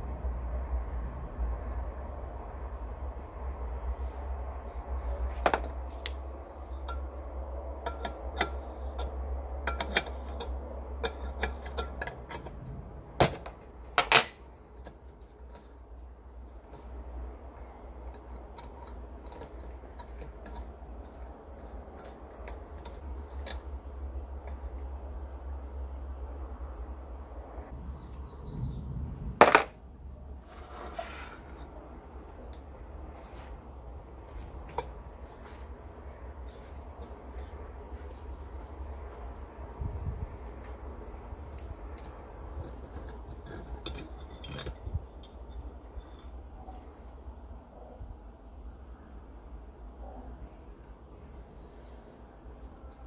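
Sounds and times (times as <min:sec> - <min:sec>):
metal clank: 0:13.2 - 0:14.6.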